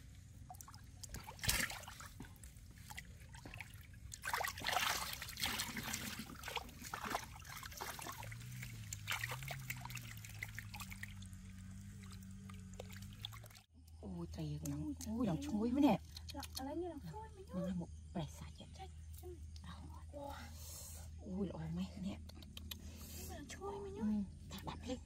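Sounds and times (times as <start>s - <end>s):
fish splashing in shallow water: 0.0s - 13.7s
water trickling: 0.0s - 13.7s
low wavering hum: 0.0s - 25.0s.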